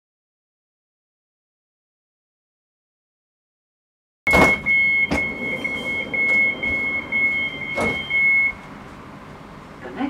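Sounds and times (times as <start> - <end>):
steady high electronic tone: 4.3 - 8.7
train carriage rumble: 4.3 - 10.0.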